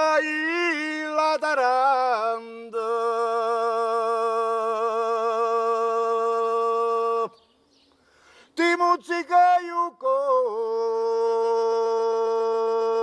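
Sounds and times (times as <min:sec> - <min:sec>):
man singing unaccompanied: 0:00.0 - 0:07.5, 0:08.6 - 0:13.0.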